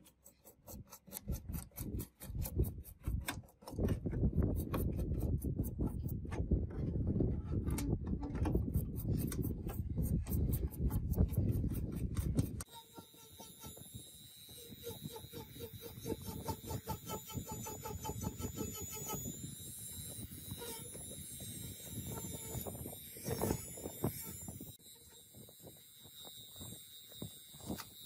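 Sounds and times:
brush wheel scrubbing circuit board: 0:00.0 - 0:06.3, 0:08.4 - 0:28.0
rotary tool high-pitched whine: 0:08.6 - 0:28.0.

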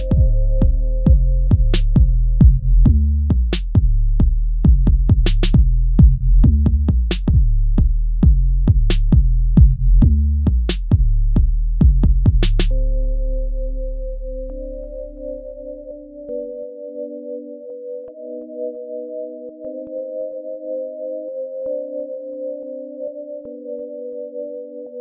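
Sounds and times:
drum machine beat: 0:00.0 - 0:12.8
heavy bass line: 0:00.0 - 0:16.3.

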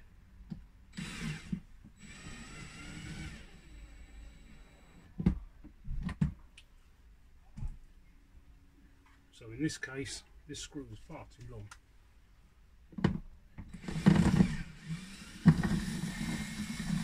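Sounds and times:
cordless screwdriver whirring: 0:01.0 - 0:05.0, 0:13.7 - 0:17.0.

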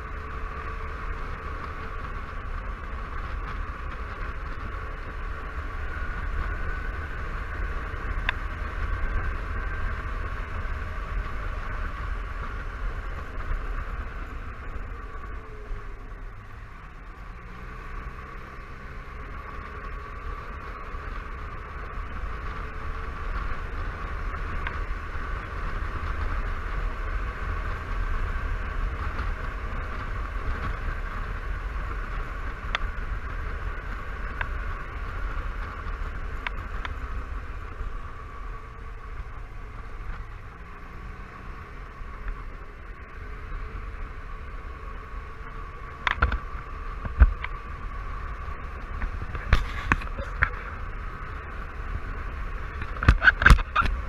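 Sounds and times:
scooter engine running: 0:00.0 - 0:54.0
wind rumble on microphone: 0:45.7 - 0:54.0.

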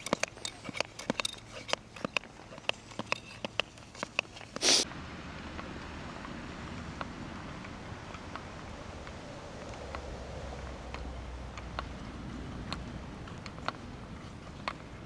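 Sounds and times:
steady hiss: 0:04.6 - 0:05.1.

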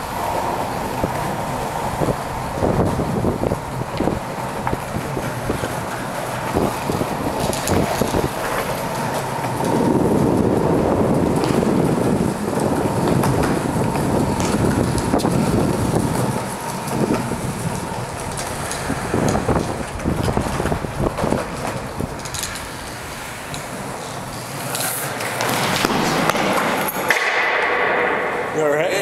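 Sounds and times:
longboard wheels rolling on concrete: 0:00.0 - 0:29.0
foot and board clicks and scuffs: 0:03.9 - 0:28.2.

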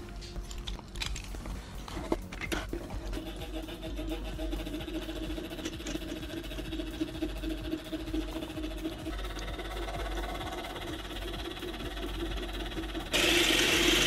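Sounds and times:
small electric motor whirring: 0:03.0 - 0:14.0.

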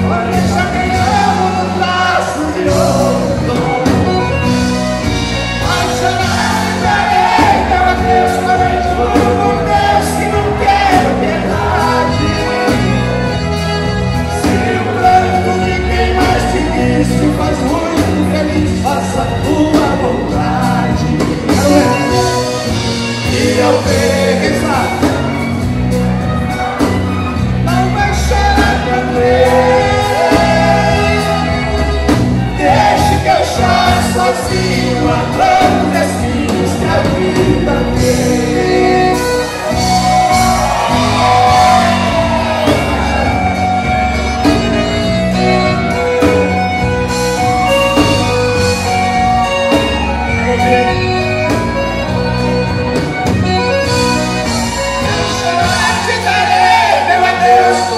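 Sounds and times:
men singing into microphones: 0:00.0 - 0:04.7, 0:05.4 - 0:13.4, 0:14.2 - 0:25.7, 0:27.7 - 0:39.8, 0:55.0 - 0:57.9
button accordion: 0:00.0 - 0:57.9
guitar and drums: 0:00.0 - 0:57.9
men shouting: 0:40.2 - 0:43.6, 0:55.1 - 0:57.9.

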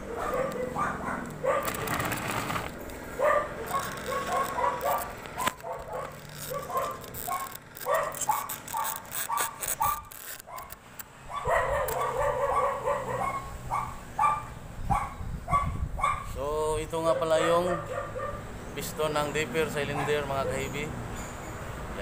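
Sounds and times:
dog barking and yipping: 0:00.0 - 0:02.5, 0:03.1 - 0:16.4, 0:17.0 - 0:18.5, 0:19.7 - 0:20.8
metal parts clicking and knocking: 0:03.7 - 0:11.1.

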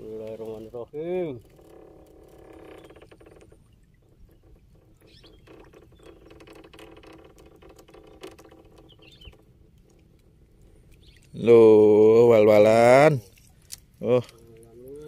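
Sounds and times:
water dripping: 0:02.8 - 0:11.9.

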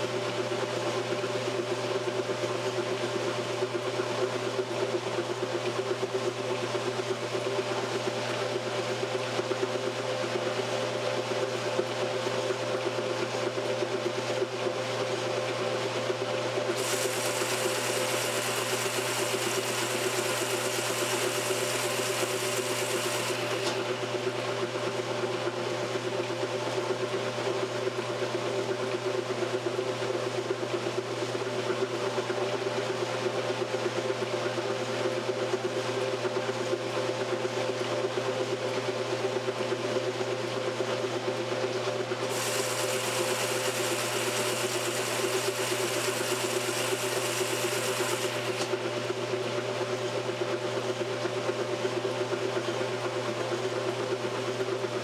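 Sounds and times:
washing machine agitating: 0:16.0 - 0:27.7.

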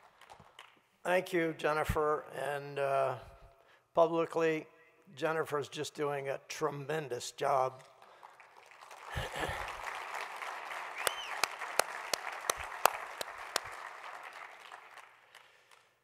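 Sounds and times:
close hand claps at microphone: 0:07.9 - 0:16.0
audience applause: 0:08.0 - 0:15.9.

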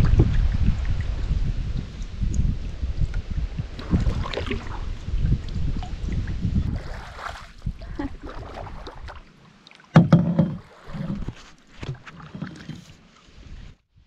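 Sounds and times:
paddle splashing in water: 0:03.7 - 0:13.5
light knocks on canoe: 0:09.9 - 0:12.8.

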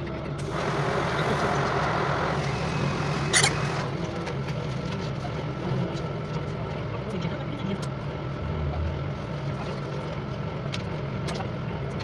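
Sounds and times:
bus engine drone: 0:00.0 - 0:12.0
air hiss: 0:00.4 - 0:03.8.

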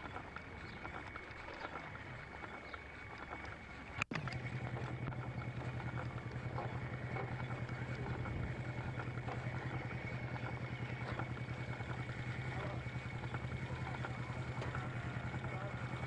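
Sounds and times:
low hum with flutter: 0:00.0 - 0:16.0.

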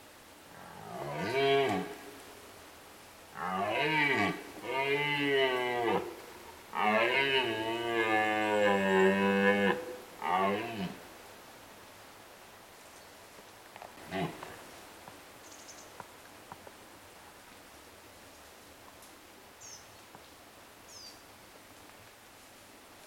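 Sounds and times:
deer stag roaring: 0:00.5 - 0:02.1, 0:03.4 - 0:11.0, 0:14.0 - 0:14.6.

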